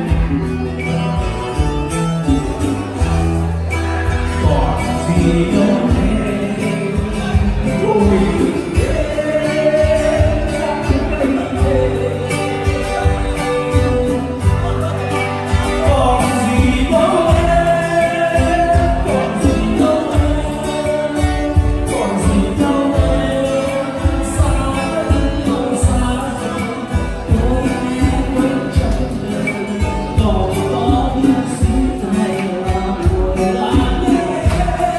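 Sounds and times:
live band music: 0.0s - 34.9s
man singing: 2.2s - 34.9s.

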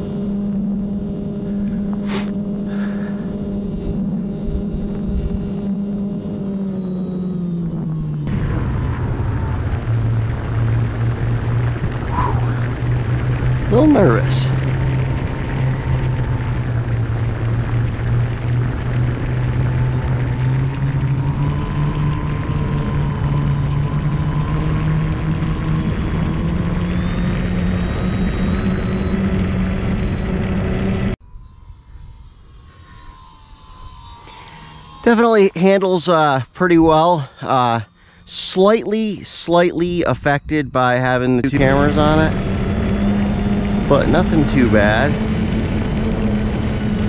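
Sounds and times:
rc plane propeller droning: 0.0s - 47.0s
rushing air: 8.3s - 15.8s
wind rush: 8.3s - 24.4s.

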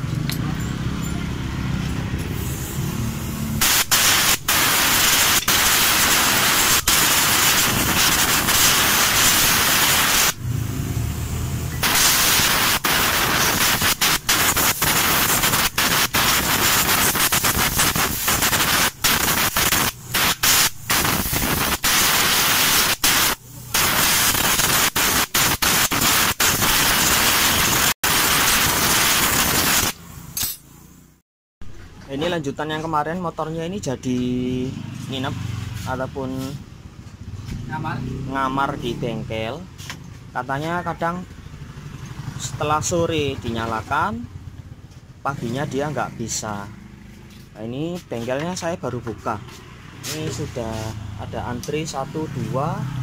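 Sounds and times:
compressed air blow gun hissing: 2.3s - 10.4s, 11.8s - 30.0s.

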